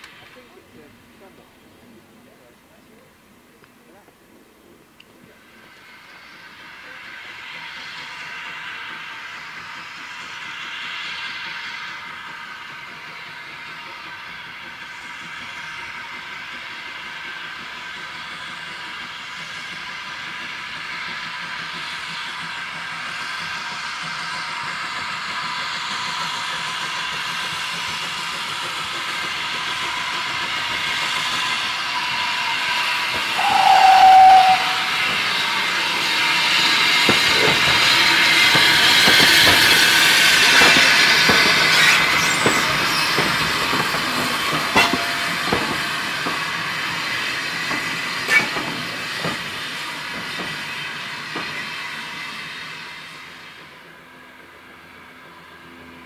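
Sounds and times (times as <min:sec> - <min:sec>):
steam hissing: 0:04.3 - 0:54.0
steam locomotive whistle: 0:31.4 - 0:37.1, 0:44.6 - 0:45.8.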